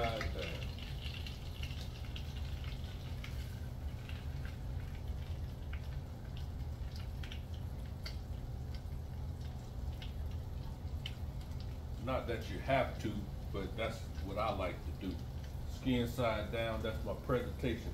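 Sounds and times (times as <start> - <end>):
chicken sizzling in a pan: 0.0 - 4.8
steady low hum: 0.0 - 17.9.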